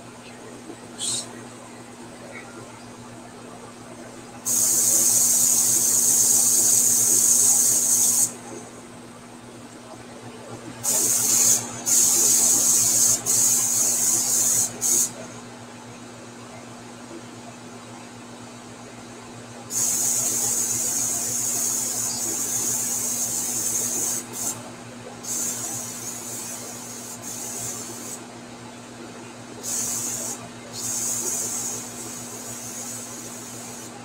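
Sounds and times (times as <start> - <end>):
steady low hum: 0.0 - 34.0
airbrush spraying hiss: 4.4 - 8.3, 10.8 - 15.1, 19.7 - 24.6, 25.2 - 28.2, 29.6 - 33.9.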